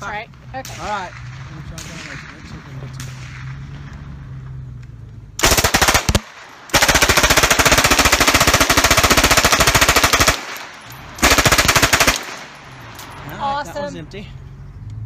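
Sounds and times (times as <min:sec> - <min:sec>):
submachine gun bursts: 0:11.2 - 0:12.5.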